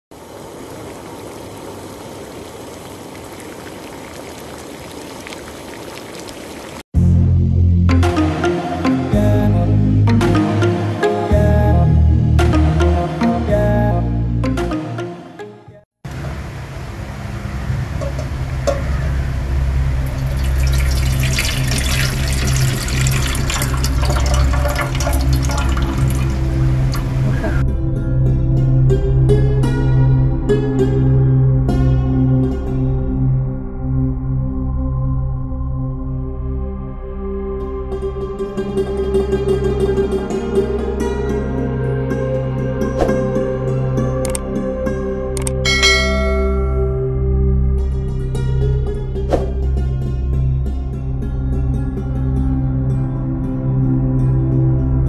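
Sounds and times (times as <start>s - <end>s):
water boiling in saucepan: 0.1s - 6.8s, 19.9s - 27.4s.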